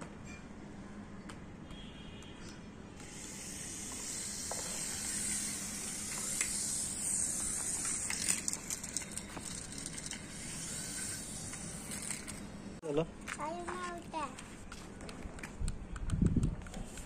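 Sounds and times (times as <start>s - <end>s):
toy helicopter motor and rotors: 3.0s - 12.8s.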